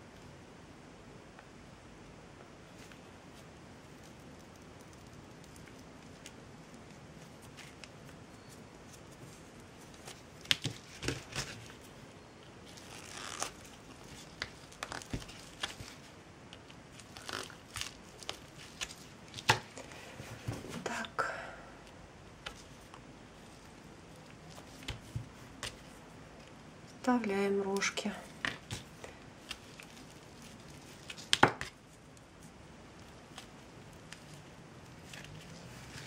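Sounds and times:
rustling and crinkling: 2.5 - 21.0, 22.4 - 36.0.

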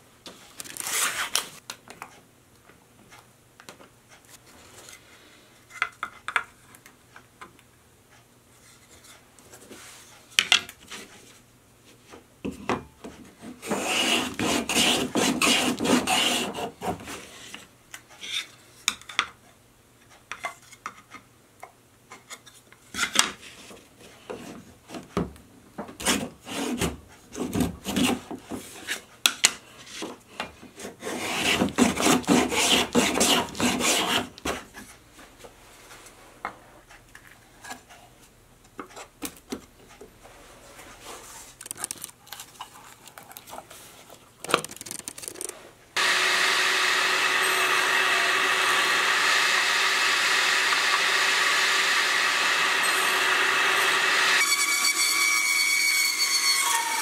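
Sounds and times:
hand plane shaving wood: 13.6 - 17.5, 26.0 - 28.3, 30.8 - 34.4, 45.3 - 54.6
clicks and knocks of handling: 41.5 - 45.6.

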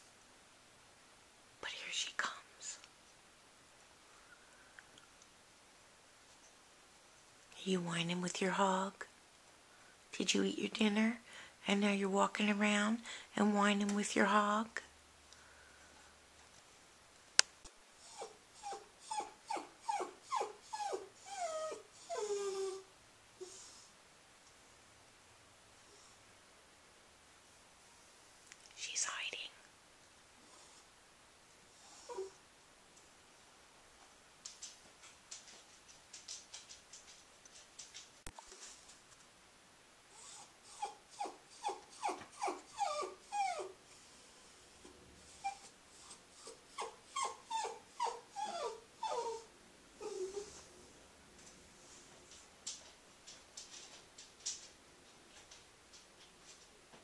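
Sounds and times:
dog whining: 18.0 - 23.7, 31.9 - 32.4, 40.1 - 44.4, 45.3 - 50.7.

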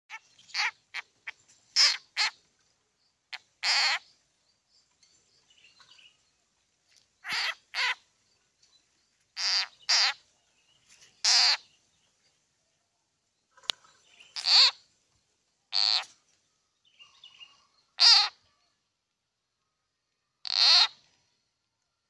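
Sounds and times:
frog distress cries: 3.6 - 4.0, 7.2 - 8.0, 9.4 - 10.2, 11.3 - 11.6, 14.4 - 14.8, 15.8 - 16.0, 18.0 - 18.4, 20.5 - 20.9.

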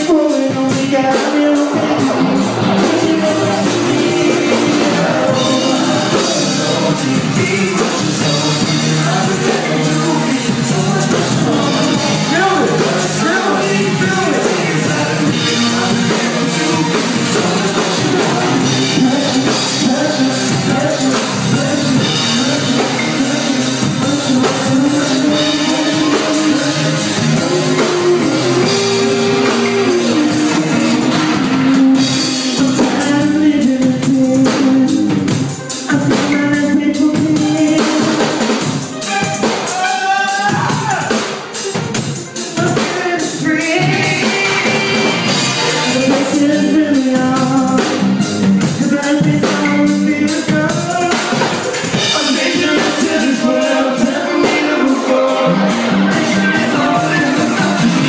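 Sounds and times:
drum kit: 0.0 - 58.0
keyboard held notes: 0.0 - 58.0
person singing into microphone: 0.0 - 58.0.

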